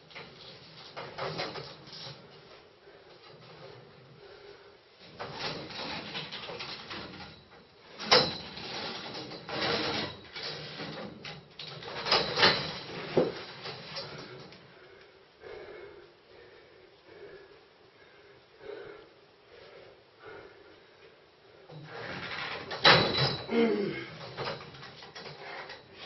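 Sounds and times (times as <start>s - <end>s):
scaffolding tubes creaking: 5.0s - 14.6s, 21.7s - 26.0s.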